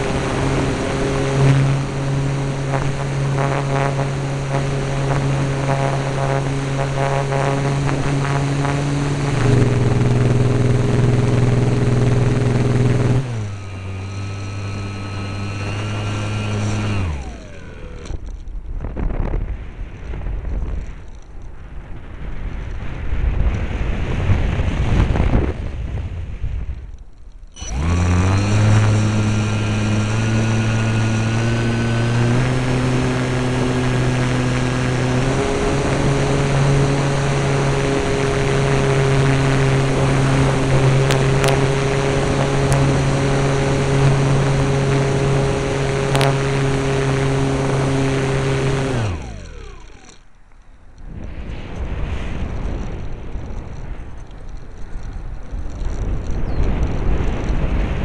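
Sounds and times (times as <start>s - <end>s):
model airplane motor drone: 0.0s - 21.3s, 26.3s - 58.0s
rushing wind noise: 0.0s - 26.9s, 51.0s - 58.0s.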